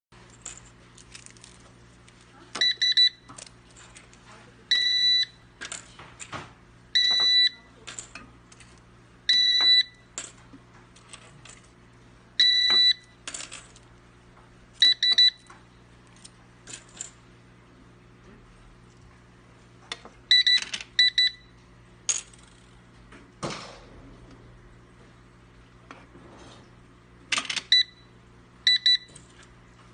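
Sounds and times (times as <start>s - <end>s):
card reader beeping: 2.6s - 3.5s, 4.7s - 5.5s, 7.0s - 7.8s, 9.3s - 10.2s, 12.4s - 13.2s, 14.8s - 15.6s, 20.3s - 21.6s, 27.3s - 29.4s.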